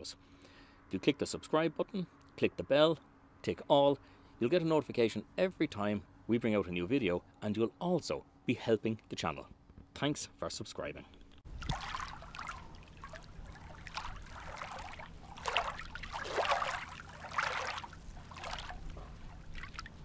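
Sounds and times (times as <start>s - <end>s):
steady low hum: 0.0s - 10.0s, 11.0s - 20.0s
water splashing and trickling: 11.5s - 20.0s.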